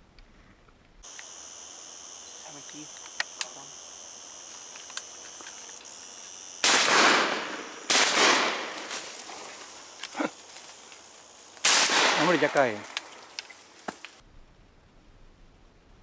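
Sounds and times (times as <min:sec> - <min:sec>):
insect chirring: 0:01.0 - 0:14.2
faint clicks: 0:02.7 - 0:03.6, 0:04.5 - 0:06.0, 0:12.5 - 0:14.2
shotgun shots with echo: 0:06.6 - 0:08.9, 0:11.6 - 0:12.8.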